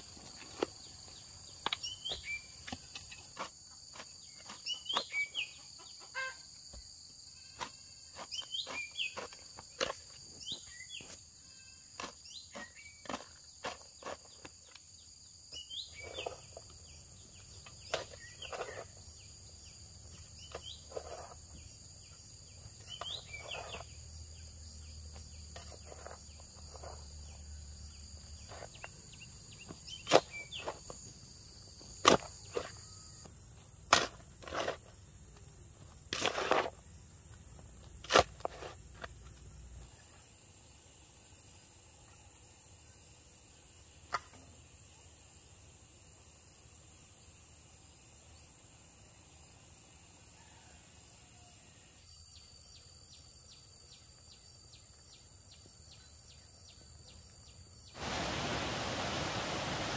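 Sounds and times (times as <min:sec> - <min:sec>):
insects droning: 0:00.0 - 0:59.9
hoe chopping dry soil: 0:07.6 - 0:11.1, 0:12.0 - 0:14.7, 0:17.7 - 0:19.0, 0:29.6 - 0:31.0, 0:31.9 - 0:32.8, 0:33.8 - 0:35.0, 0:36.0 - 0:36.8, 0:37.9 - 0:38.8.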